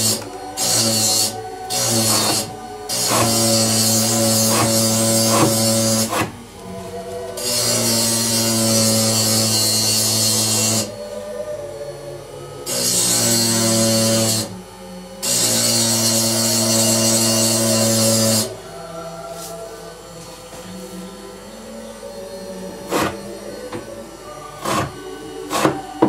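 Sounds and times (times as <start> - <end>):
small electric motor running: 0.0 - 11.1, 12.6 - 18.6.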